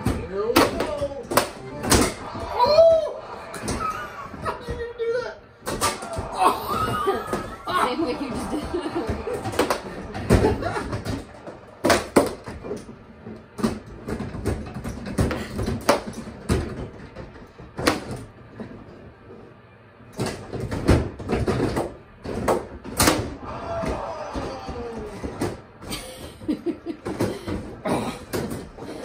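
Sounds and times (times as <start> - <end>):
puck and plastic figures clacking: 0.0 - 2.5, 5.6 - 18.8.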